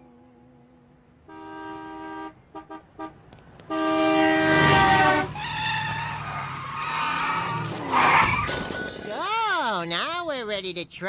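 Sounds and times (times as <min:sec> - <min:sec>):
long loud horn blast: 0:01.2 - 0:05.4
horn honks: 0:01.2 - 0:05.6.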